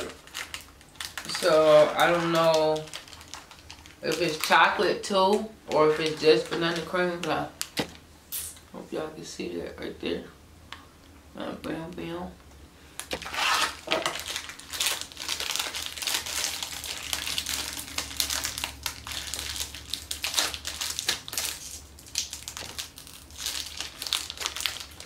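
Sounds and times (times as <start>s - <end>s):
plastic wrapper crinkling: 0.0s - 8.0s, 13.0s - 25.0s.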